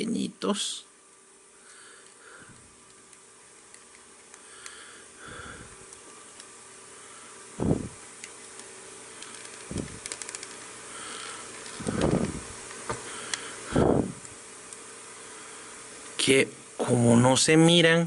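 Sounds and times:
faint steady hiss: 0:00.0 - 0:18.0
small plastic clicks: 0:08.2 - 0:10.6.

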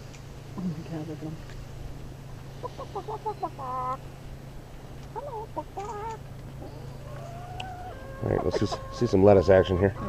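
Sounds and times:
hens clucking: 0:02.0 - 0:10.0.

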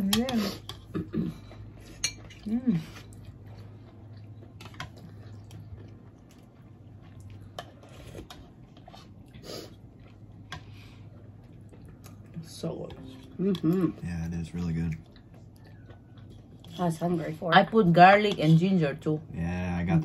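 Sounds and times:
cutlery clinking on bowls: 0:00.0 - 0:02.5
steady low hum: 0:00.0 - 0:20.0
person humming: 0:13.3 - 0:14.0.

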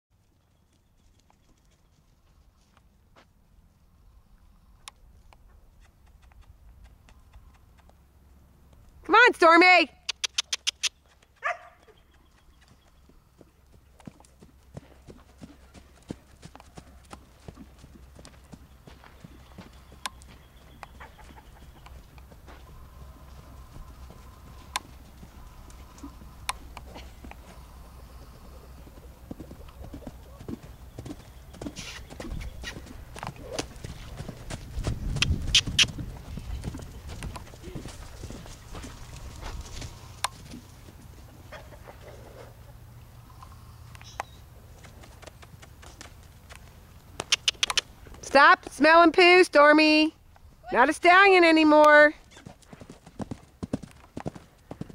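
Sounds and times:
horse hooves trotting on sand: 0:00.2 - 0:03.4, 0:04.9 - 0:09.3, 0:10.1 - 0:42.5, 0:43.3 - 0:54.9
sharp clicks: 0:10.0 - 0:11.0, 0:35.1 - 0:36.0, 0:47.2 - 0:47.9
sharp loud clicks: 0:47.2 - 0:47.9.

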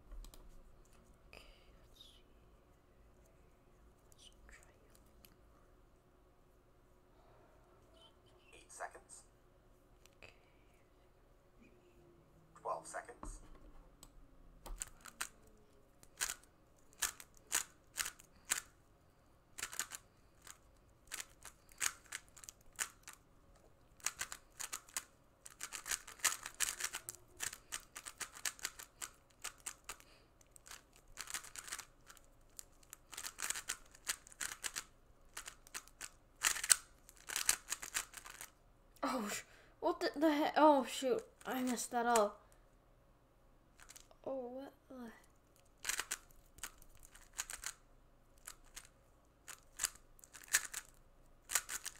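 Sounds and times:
puzzle cube plastic clicking: 0:14.6 - 0:15.4, 0:16.0 - 0:18.7, 0:19.6 - 0:23.2, 0:24.0 - 0:38.5, 0:45.6 - 0:47.8, 0:48.4 - 0:48.9, 0:49.5 - 0:51.9.

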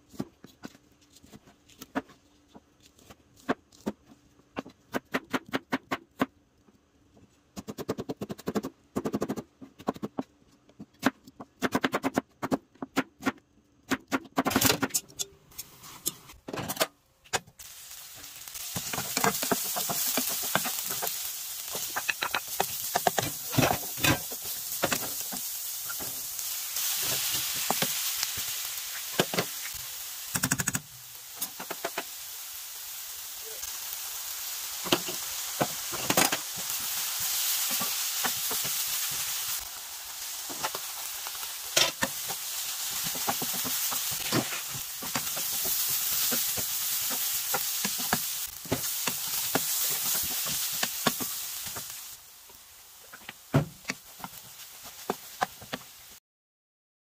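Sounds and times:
oil sizzling in frying pan: 0:17.5 - 0:56.2.

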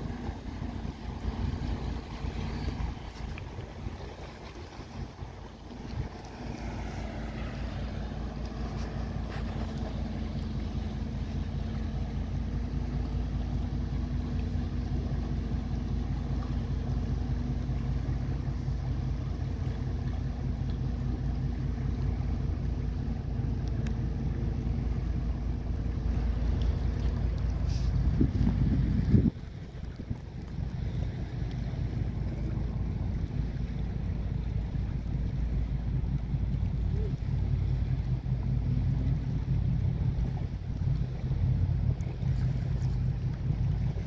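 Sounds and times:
ship diesel engines rumbling: 0:00.0 - 0:44.0
wind on microphone: 0:26.8 - 0:31.3.

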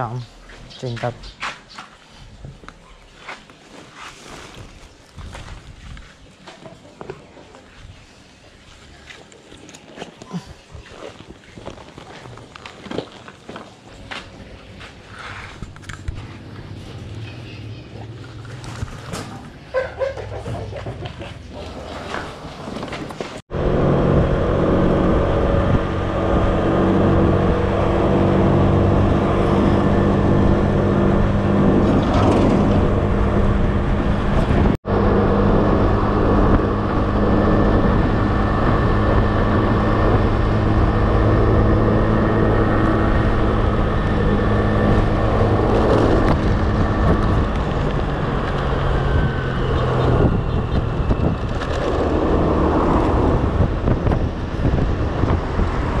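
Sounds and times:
engine running steadily: 0:23.5 - 0:56.0.

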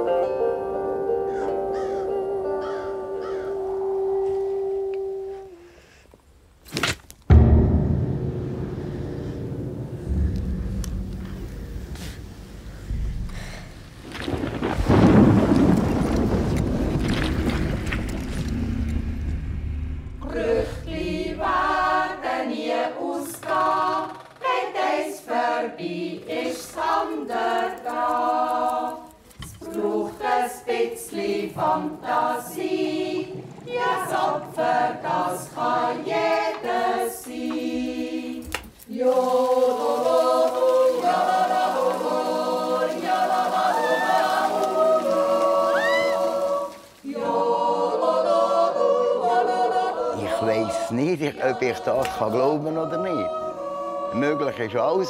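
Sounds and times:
person singing: 0:00.0 - 0:05.8
voices holding chords: 0:00.0 - 0:05.8
low wind rumble: 0:07.3 - 0:22.5.

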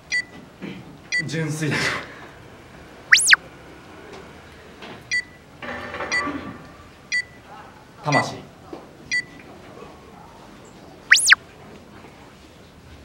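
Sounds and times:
electronic sweep: 0:03.1 - 0:03.4, 0:11.1 - 0:11.4
short high timer beeps: 0:03.1 - 0:03.4, 0:11.1 - 0:11.4.

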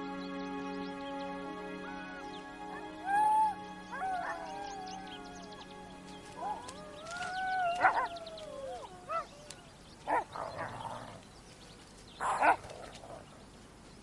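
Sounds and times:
wolf howling: 0:02.6 - 0:11.1
wolves yelping: 0:02.7 - 0:05.5, 0:06.3 - 0:11.2, 0:12.2 - 0:13.3.

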